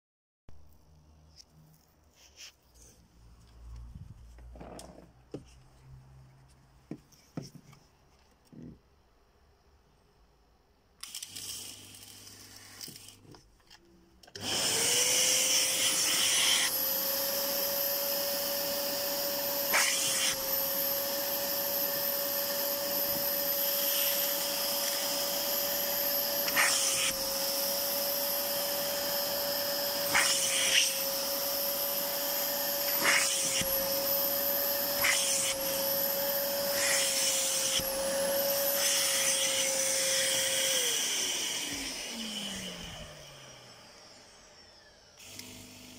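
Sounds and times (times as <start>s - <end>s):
extraction cleaner humming: 14.2s - 45.9s
nozzle sucking over fabric: 14.5s - 42.0s.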